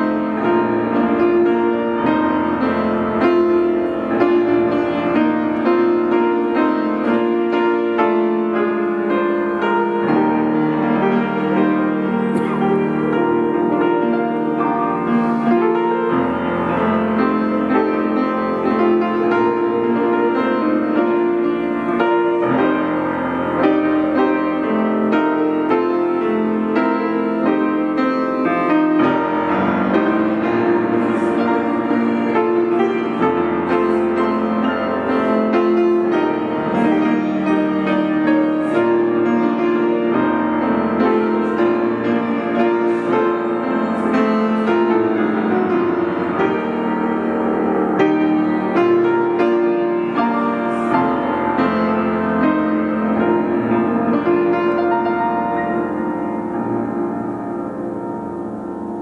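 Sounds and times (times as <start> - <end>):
grand piano chords: 0.0 - 59.0.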